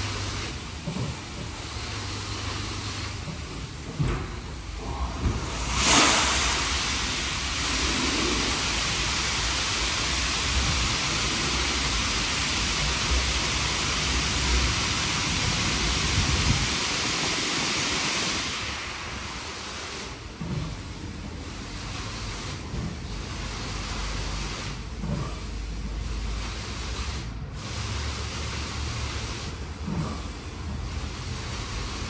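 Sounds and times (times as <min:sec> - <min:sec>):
high-pressure water spraying car: 0:00.0 - 0:32.0.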